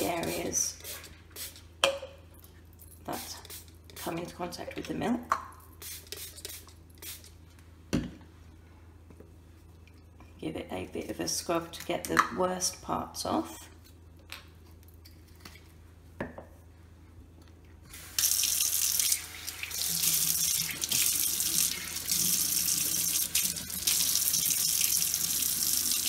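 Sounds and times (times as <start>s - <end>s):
water running into sink: 18.2s - 26.0s.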